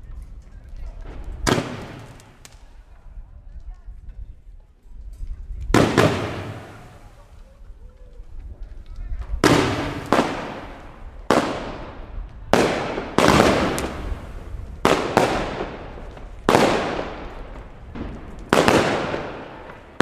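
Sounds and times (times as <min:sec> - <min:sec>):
fireworks bangs echoing: 0:01.0 - 0:02.7, 0:05.7 - 0:07.3, 0:09.4 - 0:20.0.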